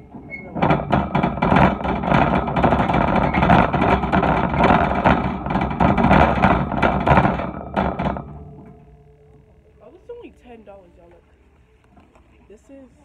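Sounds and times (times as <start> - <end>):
shopping cart wheels rolling: 0.0 - 8.6
wire basket rattling: 0.0 - 9.1.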